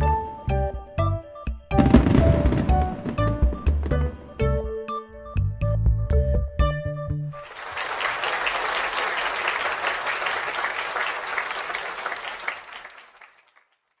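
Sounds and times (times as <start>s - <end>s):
audience applause: 7.4s - 14.0s.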